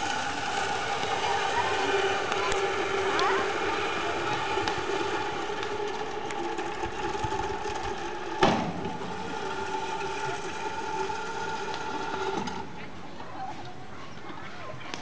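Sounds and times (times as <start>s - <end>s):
zip-line trolley whirring on cable: 0.0s - 13.0s
sharp bang: 8.4s - 9.0s.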